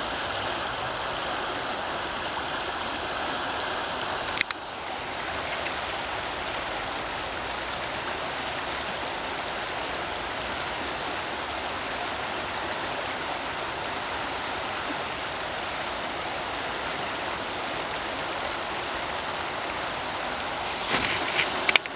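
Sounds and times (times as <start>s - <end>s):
river water rushing: 0.0s - 21.9s.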